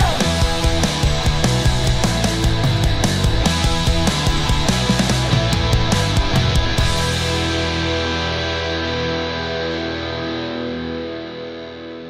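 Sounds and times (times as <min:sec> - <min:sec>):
drums: 0:00.0 - 0:11.0
distorted electric guitar: 0:00.0 - 0:12.0.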